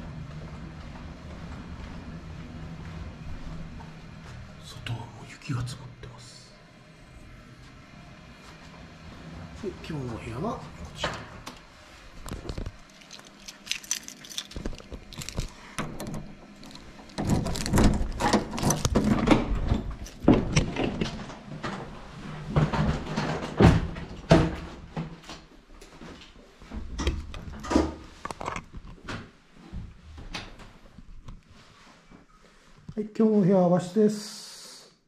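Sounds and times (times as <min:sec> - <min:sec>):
rattles and knocks: 0:12.3 - 0:25.1
keys jangling: 0:12.9 - 0:15.6.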